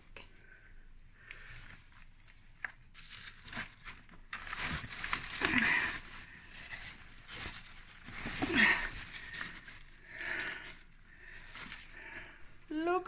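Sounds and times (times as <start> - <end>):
small snaps and crackles: 1.2 - 9.9
leaves rustling and crinkling: 1.2 - 13.0.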